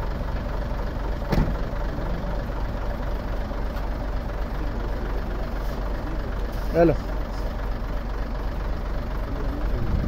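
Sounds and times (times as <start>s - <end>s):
truck diesel engine idling: 0.0s - 10.0s
thump: 1.3s - 1.6s.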